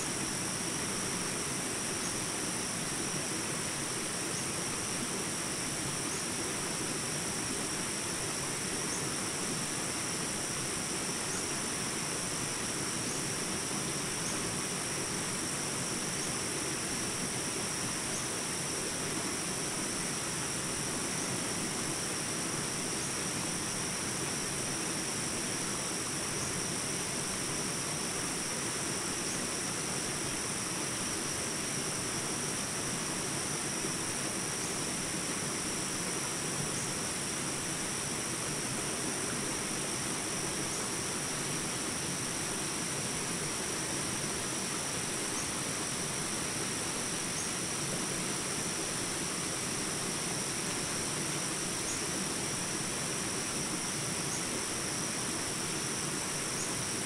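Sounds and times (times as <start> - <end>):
high insect chorus: 0.0 - 57.0.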